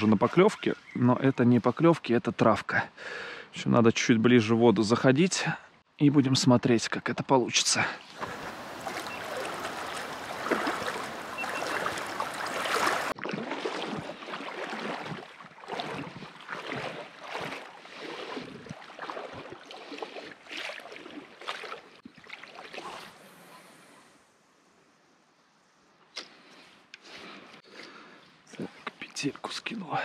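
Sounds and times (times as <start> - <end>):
steady rush of water: 8.1 - 21.8
water sloshing with wading strides: 8.1 - 23.6.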